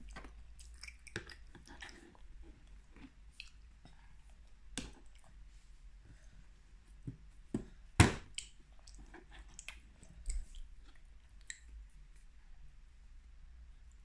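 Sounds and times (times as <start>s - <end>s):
toddler chewing with smacking: 0.0s - 5.4s, 8.3s - 12.2s.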